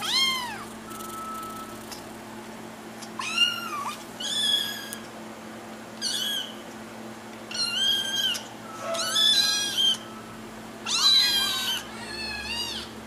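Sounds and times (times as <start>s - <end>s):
kitten meowing: 0.0s - 0.7s, 3.2s - 5.0s, 6.0s - 6.6s, 7.5s - 10.0s, 10.8s - 12.9s.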